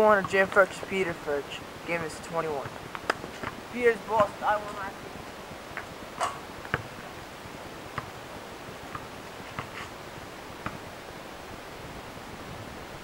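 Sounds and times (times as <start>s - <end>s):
background hiss: 0.0s - 13.0s
basketball bouncing on asphalt: 0.2s - 0.7s, 2.6s - 4.4s, 5.7s - 7.0s, 8.9s - 9.8s.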